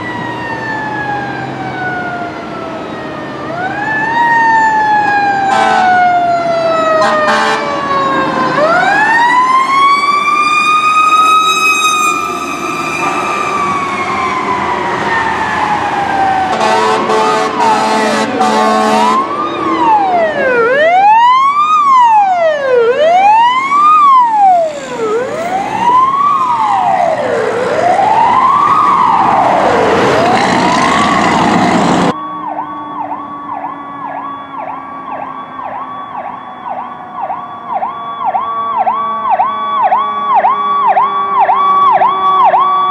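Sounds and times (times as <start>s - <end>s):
fire truck siren: 0.0s - 42.9s
truck horn blasts: 5.5s - 6.0s, 7.0s - 7.7s, 16.5s - 19.2s.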